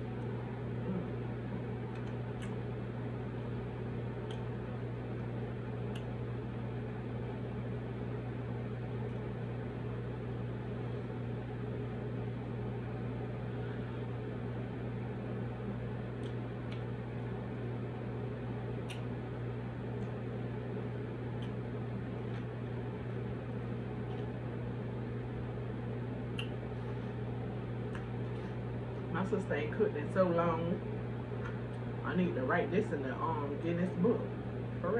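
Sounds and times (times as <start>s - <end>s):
machine hum: 0.0s - 34.9s
faint sharp clicks: 26.3s - 26.6s.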